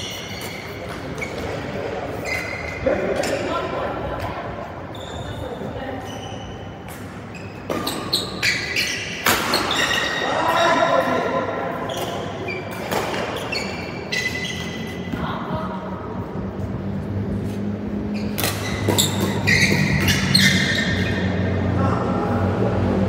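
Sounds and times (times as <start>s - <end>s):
shoes squeaking on court: 0.0s - 10.4s, 11.7s - 15.6s, 17.3s - 21.5s
racket hitting shuttlecock: 6.9s - 10.0s, 18.3s - 20.6s.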